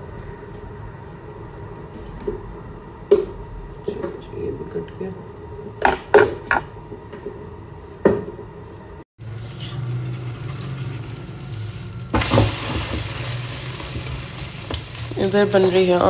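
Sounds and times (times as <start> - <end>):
omelette sizzling on griddle: 9.2 - 16.0.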